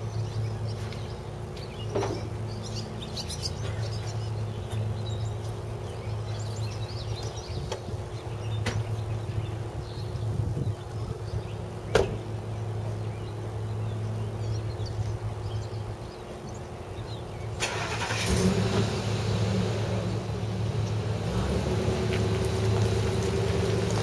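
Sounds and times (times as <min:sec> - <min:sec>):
wind gusting on microphone: 0:09.2 - 0:11.7.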